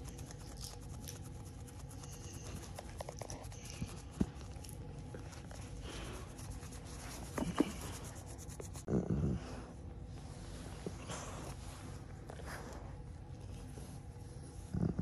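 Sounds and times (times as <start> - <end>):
hand rubbing dog's ear: 0.0 - 8.9.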